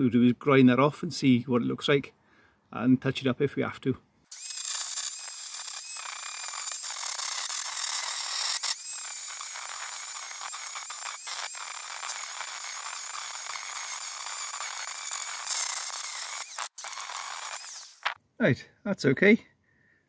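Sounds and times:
angle grinder motor whine: 4.4 - 18.2.

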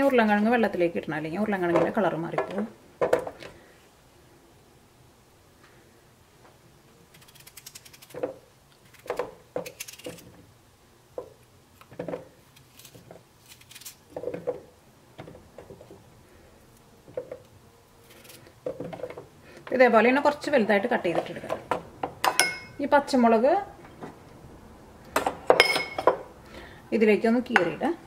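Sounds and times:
knife cutting raw potato: 7.1 - 10.4, 11.2 - 14.4.

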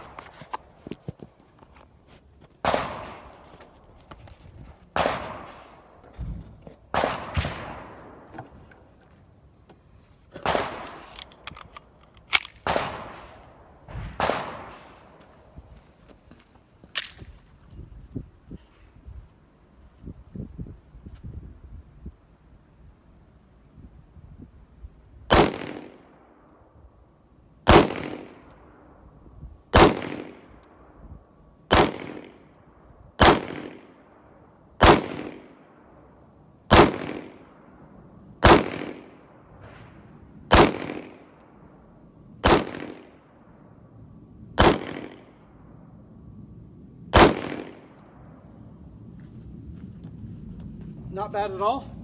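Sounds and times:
pistol shots: 2.6 - 3.3, 4.9 - 5.7, 6.9 - 8.2, 10.4 - 11.1, 12.3 - 13.3, 14.1 - 15.1, 25.3 - 26.1, 27.7 - 28.5, 29.7 - 30.6, 31.7 - 32.5, 33.2 - 34.0, 34.8 - 35.6, 36.7 - 37.5, 38.4 - 39.2, 40.5 - 41.3, 42.4 - 43.2, 44.6 - 45.4, 47.1 - 48.0.

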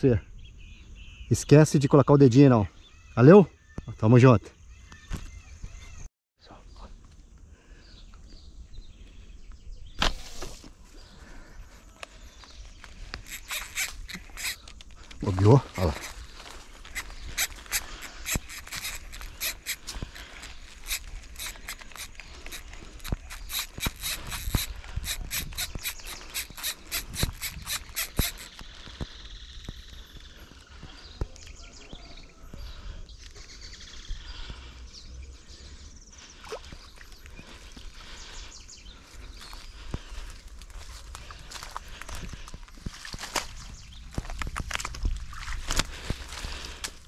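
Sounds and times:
fishing reel clicking: 13.2 - 14.8, 16.9 - 28.7.

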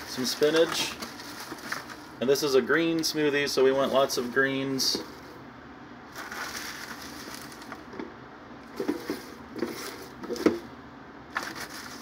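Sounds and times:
spinach leaves rustling and crunching: 0.0 - 2.1, 6.1 - 8.0, 11.3 - 12.0.

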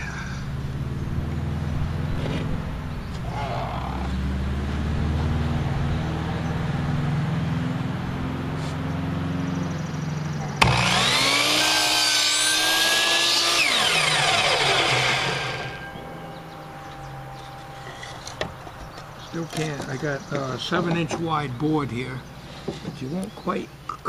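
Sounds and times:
steady low hum: 9.0 - 23.9
miter saw motor whining: 10.6 - 19.7.

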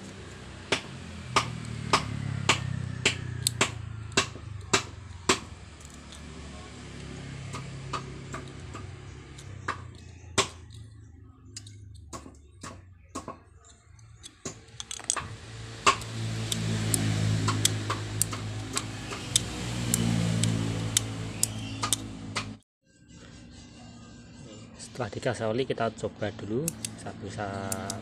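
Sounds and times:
low engine hum: 0.0 - 22.6
switch clicking: 15.9 - 22.6.

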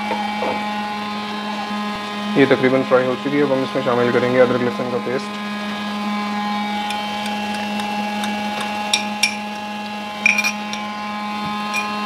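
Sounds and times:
steady background hum: 0.0 - 12.0
spoon clinking on glass jar: 8.2 - 9.6, 10.2 - 10.9, 11.7 - 12.0.

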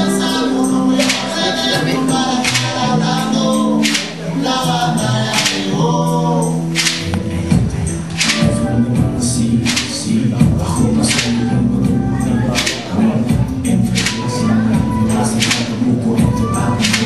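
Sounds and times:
salsa band playing: 0.0 - 17.0
voices singing together: 0.0 - 17.0
sharp percussion strikes: 6.4 - 17.0.

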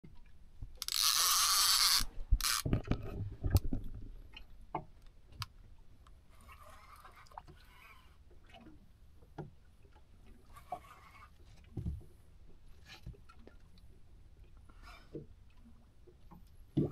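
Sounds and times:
fishing reel drag buzzing: 0.8 - 2.7.

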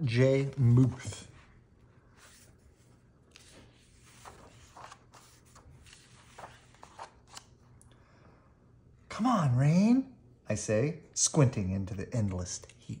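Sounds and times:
paper pages turning: 2.2 - 7.6.

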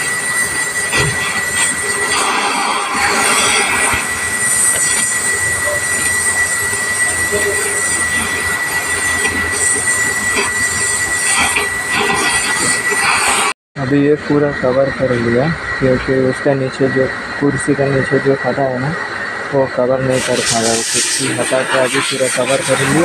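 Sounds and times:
welding torch hissing and whistling: 0.0 - 23.0.

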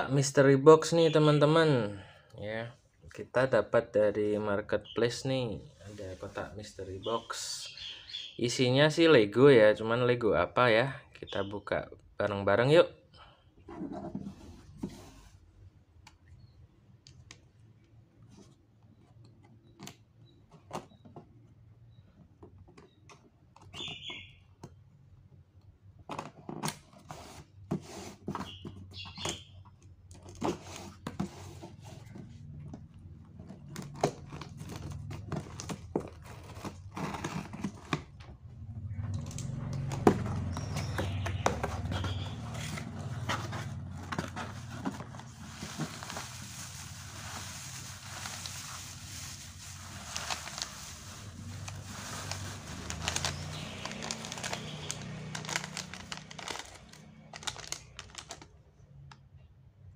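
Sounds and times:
shredded paper rustling: 41.6 - 58.4.

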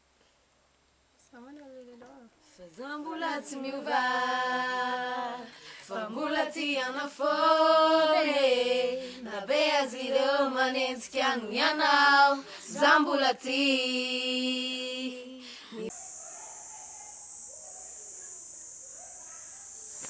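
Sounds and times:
girls singing unaccompanied: 2.7 - 15.9.

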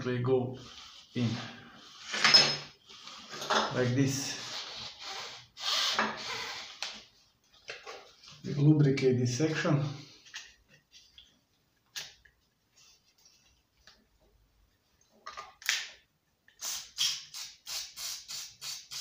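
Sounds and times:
aerosol spray hissing: 16.6 - 19.0.

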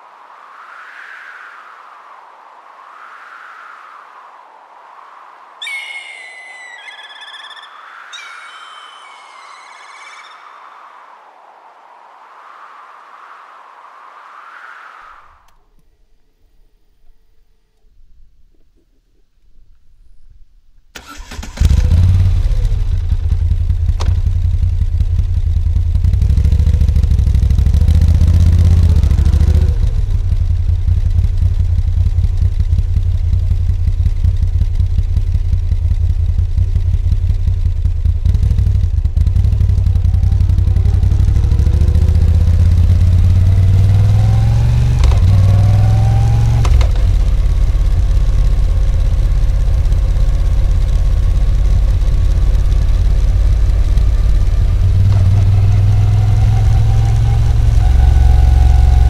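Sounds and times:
motorcycle engine starting and revving: 21.0 - 59.0.

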